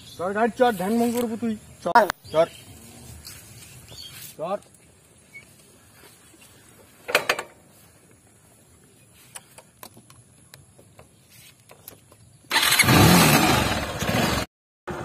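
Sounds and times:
motorcycle engine starting: 12.5s - 15.0s.

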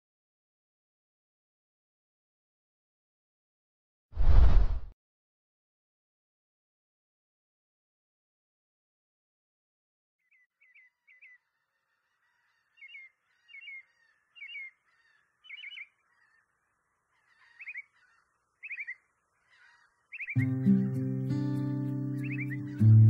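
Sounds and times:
bird chirps: 10.2s - 11.5s, 12.7s - 16.5s, 17.2s - 20.8s, 22.1s - 23.0s
acoustic guitar music: 20.4s - 23.0s.

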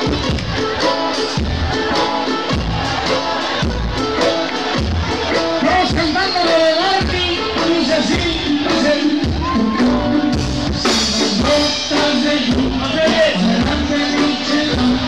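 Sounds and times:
drum kit: 0.0s - 15.0s
live band playing dance music: 0.0s - 15.0s
person singing: 5.4s - 15.0s.

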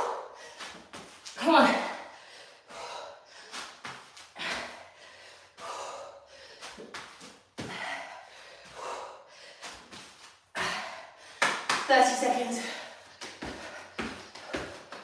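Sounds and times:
woman breathing hard: 0.0s - 1.0s, 1.7s - 11.7s, 12.6s - 15.0s.

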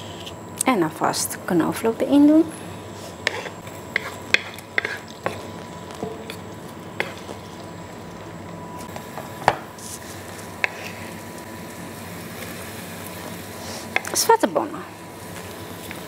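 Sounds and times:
spatula stirring garlic in oil: 3.1s - 7.9s, 9.8s - 11.4s
spatula tapping pan: 3.9s - 5.4s.

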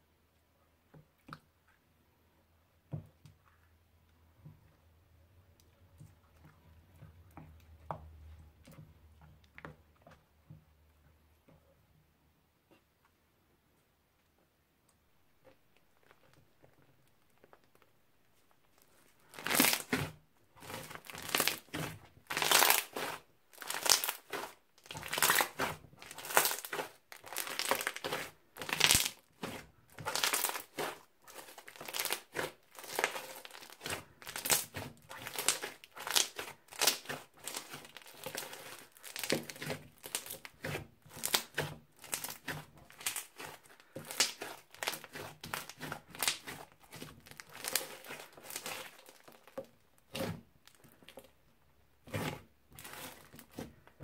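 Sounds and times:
crunchy slime squishing: 18.7s - 51.3s, 52.0s - 54.0s.

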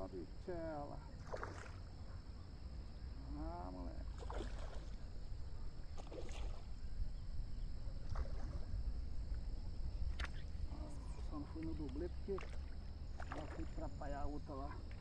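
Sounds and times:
fish splashing in water: 1.2s - 1.8s, 4.1s - 5.0s, 6.0s - 6.6s, 12.3s - 13.8s
wind rumble on microphone: 3.9s - 15.0s.

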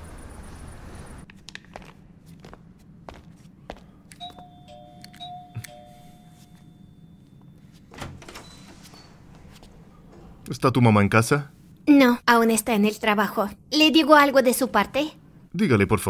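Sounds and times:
footsteps on landing: 1.3s - 4.4s
electronic two-tone doorbell chime: 4.2s - 7.6s.

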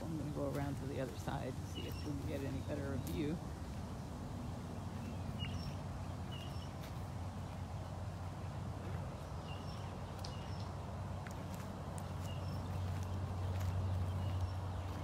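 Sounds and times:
footsteps on ground: 0.0s - 15.0s
bird chirps: 4.8s - 7.6s, 9.2s - 10.8s, 12.1s - 15.0s.

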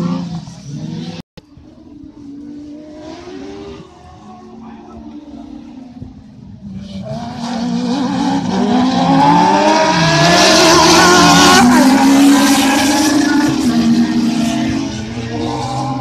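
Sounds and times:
racing buggy engines revving: 0.0s - 16.0s.

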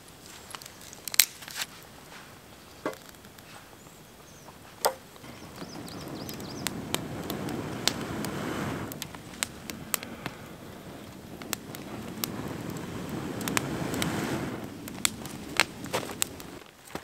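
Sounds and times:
burning twigs crackling: 0.0s - 17.0s
person blowing on fire: 5.2s - 16.6s.

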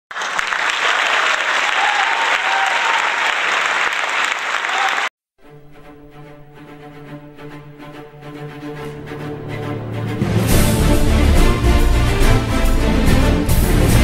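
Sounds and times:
crowd applause: 0.1s - 5.1s
soft instrumental music: 5.4s - 14.0s.

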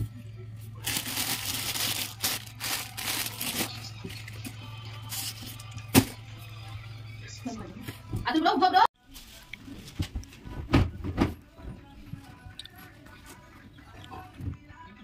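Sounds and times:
rustling and handling noises: 0.7s - 6.2s, 9.0s - 14.4s.

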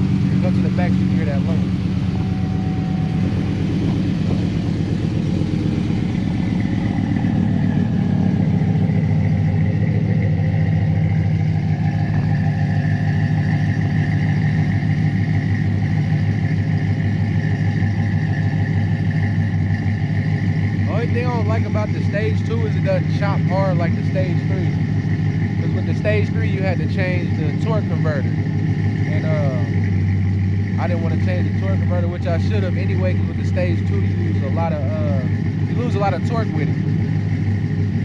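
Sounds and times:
truck engine idling with lope: 0.0s - 38.0s.

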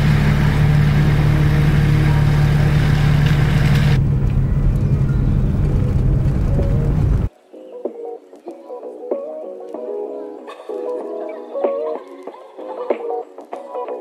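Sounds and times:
engines droning: 0.0s - 7.3s
vehicle rumble: 0.0s - 7.3s.

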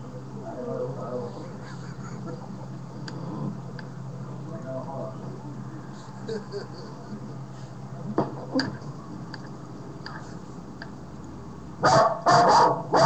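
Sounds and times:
low steady hum: 0.0s - 13.0s
dog barking: 11.8s - 13.0s.

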